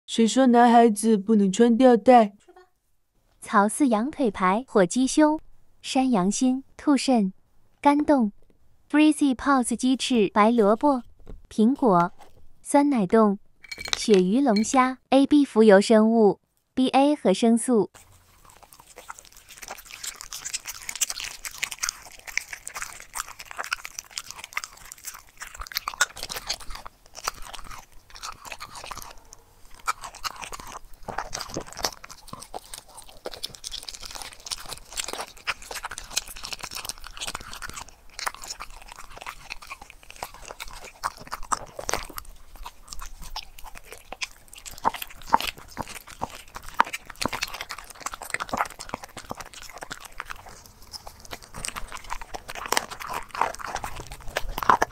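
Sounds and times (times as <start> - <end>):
dog chewing raw meat: 18.0 - 54.9.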